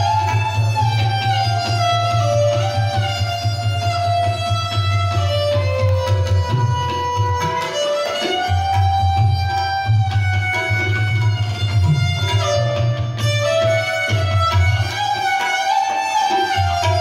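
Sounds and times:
bowed fiddle melody: 0.0 - 17.0
tabla rhythm: 0.0 - 17.0.

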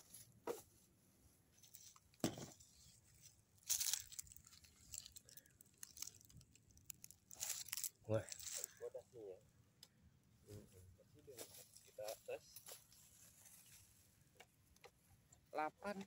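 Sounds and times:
dry leaves crunching: 3.2 - 8.8.

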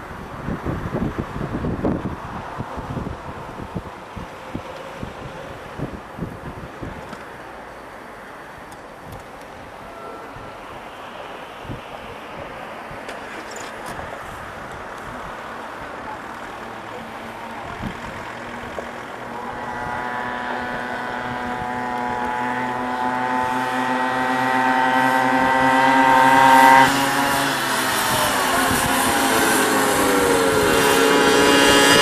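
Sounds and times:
wind noise: 0.0 - 7.7, 8.4 - 32.0
kart engine approaching: 9.5 - 32.0.

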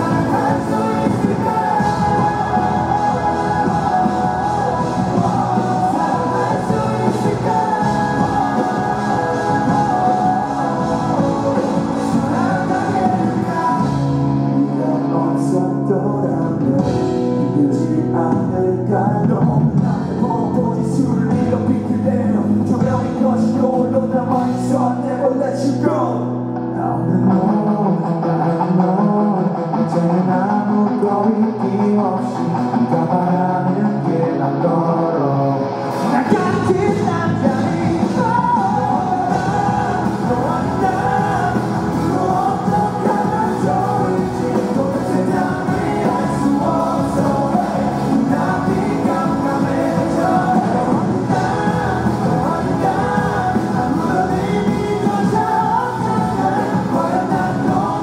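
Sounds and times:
electric bass: 0.0 - 58.0
guitar: 0.0 - 58.0
lead vocal singing: 0.0 - 58.0
live rock band: 0.0 - 58.0.

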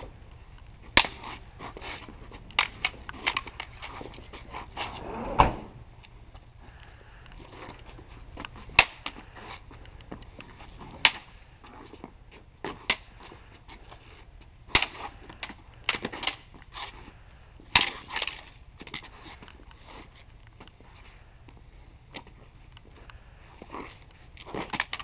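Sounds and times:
crutches clacking together: 0.9 - 4.6, 23.6 - 25.0.

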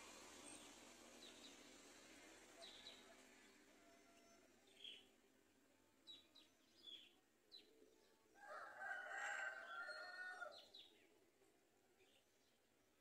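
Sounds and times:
rooster crowing: 8.4 - 10.6.

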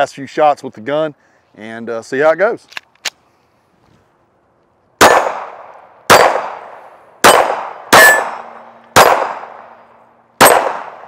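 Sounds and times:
pistol shots echoing: 5.0 - 9.8, 10.4 - 11.0.

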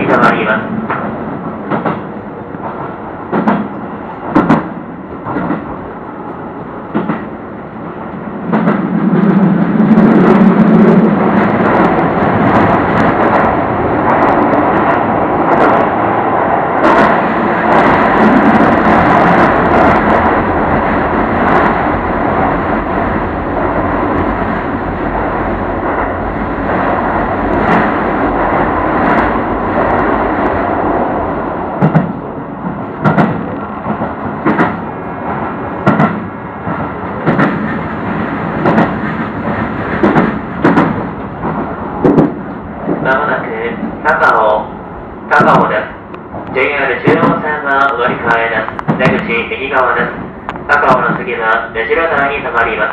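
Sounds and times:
electric train rumbling in tunnel: 0.0 - 52.9
train wheel knocks: 0.9 - 5.7, 6.9 - 7.3, 8.5 - 9.4, 31.8 - 34.8, 35.8 - 38.0, 38.6 - 43.0, 47.0 - 47.4, 48.0 - 49.3.

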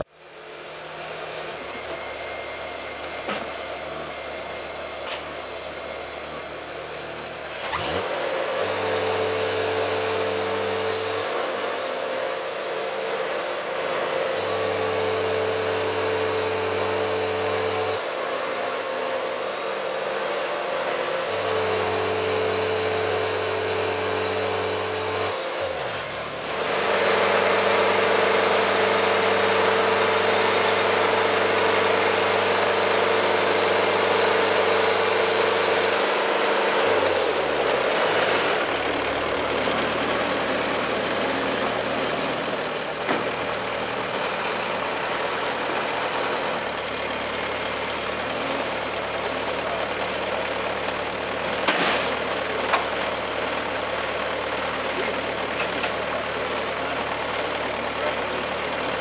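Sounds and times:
sawmill machine drone: 0.0 - 59.0
band saw cutting log: 3.1 - 59.0.

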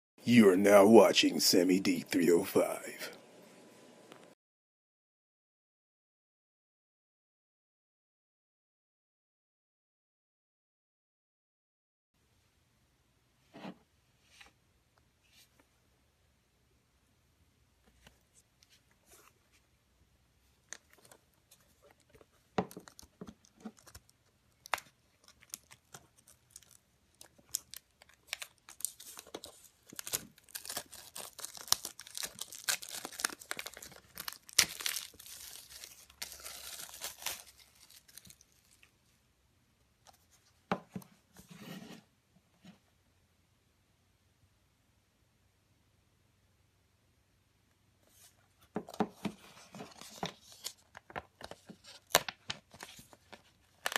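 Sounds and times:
plastic shrink wrap crinkling and tearing: 20.7 - 38.9, 49.8 - 53.9.

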